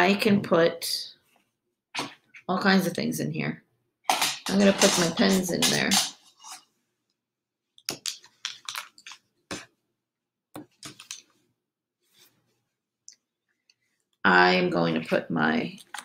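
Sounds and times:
pens clicking and rattling: 0:04.1 - 0:06.6, 0:07.8 - 0:09.2, 0:10.8 - 0:11.2, 0:15.8 - 0:16.0.

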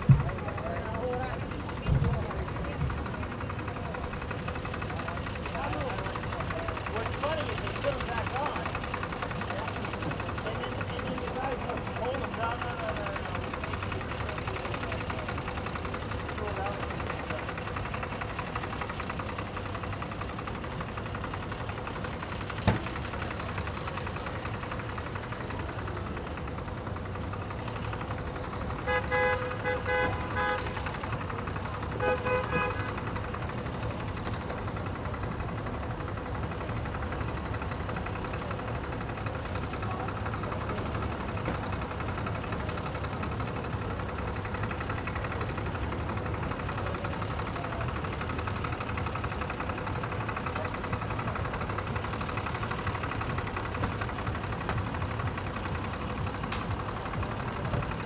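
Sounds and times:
engine idling: 0:00.0 - 0:58.0
horn sounding: 0:28.8 - 0:30.9, 0:31.9 - 0:33.0.

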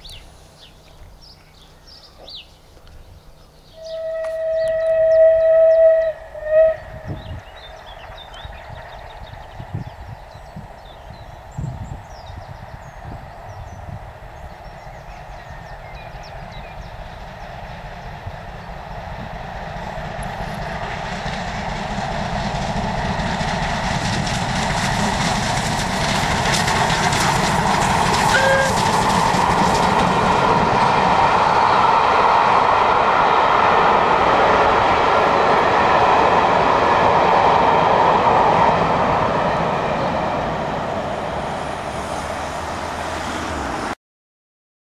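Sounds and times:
steam locomotive passing: 0:00.0 - 0:44.0
train wheels clattering over rail joints: 0:20.1 - 0:31.2.

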